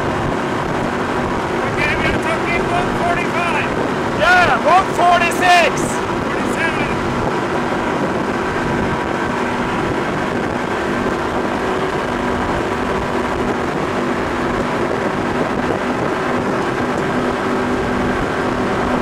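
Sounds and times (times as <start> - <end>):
powerboat engine drone: 0.0 - 19.0
wind on microphone: 0.0 - 19.0.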